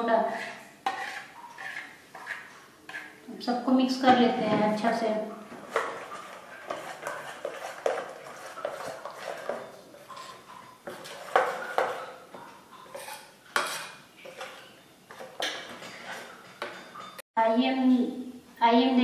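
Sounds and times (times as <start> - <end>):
spoon scraping metal bowl: 0.2 - 3.3, 5.6 - 17.2.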